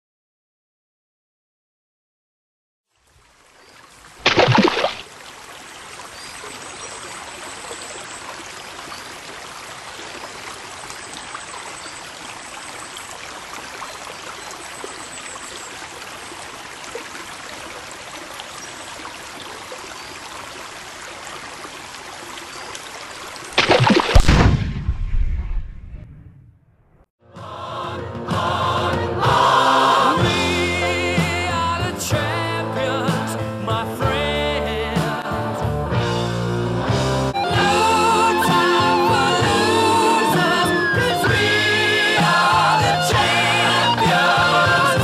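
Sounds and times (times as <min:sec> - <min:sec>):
running water: 0:02.9 - 0:24.6, 0:37.4 - 0:45.0.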